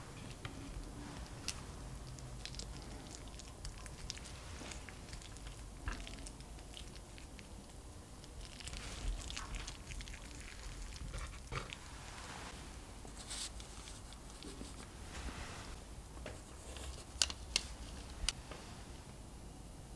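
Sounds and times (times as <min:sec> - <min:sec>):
crispy crust crackling: 0:00.0 - 0:15.8.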